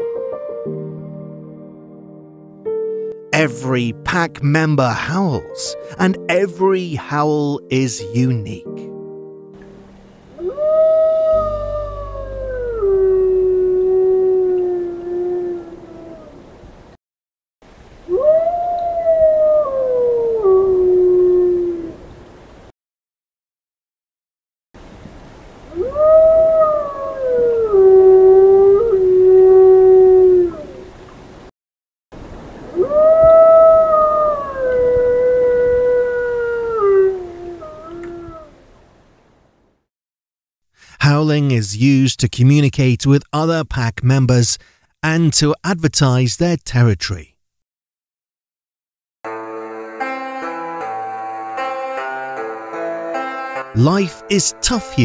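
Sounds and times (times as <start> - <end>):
wolf howling: 10.4 - 16.4, 18.1 - 22.0, 25.7 - 30.8, 32.7 - 38.6.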